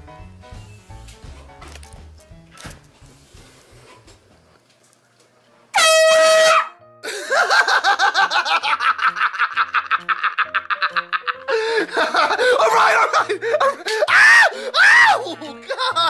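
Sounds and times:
background music: 0.0 - 4.3, 5.7 - 16.0
air horn blast: 5.7 - 6.8.

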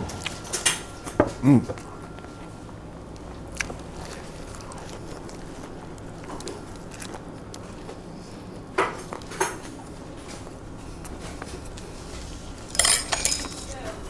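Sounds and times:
low room hum: 0.0 - 14.0
tableware clinking: 12.7 - 13.8.

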